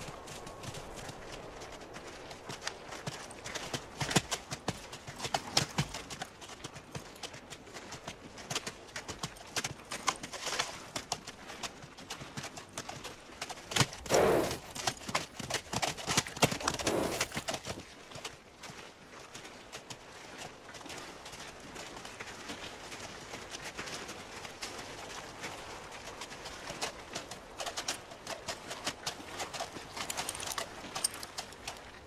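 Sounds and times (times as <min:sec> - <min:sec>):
horses hooves clip-clopping: 0:00.0 - 0:32.0
horse sound: 0:13.7 - 0:17.8, 0:27.6 - 0:32.0.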